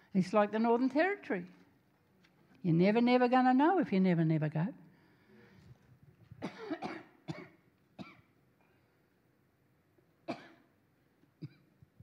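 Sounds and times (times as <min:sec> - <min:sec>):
woman coughing: 0:06.4 - 0:08.3, 0:10.3 - 0:10.7, 0:11.4 - 0:11.7.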